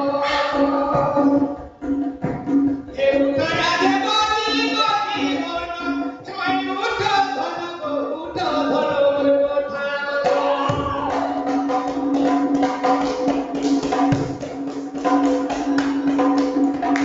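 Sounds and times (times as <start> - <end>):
man singing into a microphone: 0.0 - 1.6, 2.9 - 11.5.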